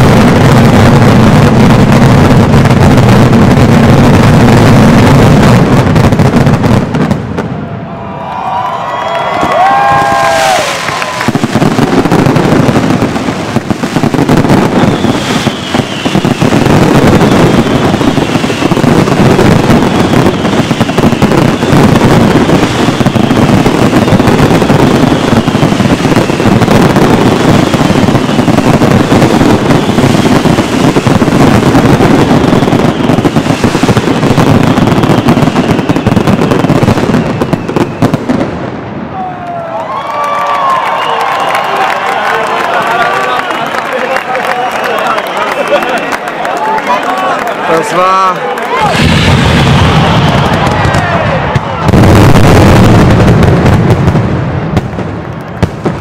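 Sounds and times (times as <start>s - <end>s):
firecrackers banging: 0.0s - 56.0s
falling whistles: 14.7s - 18.8s, 20.0s - 21.7s, 34.7s - 38.4s, 40.0s - 42.2s, 49.0s - 51.0s.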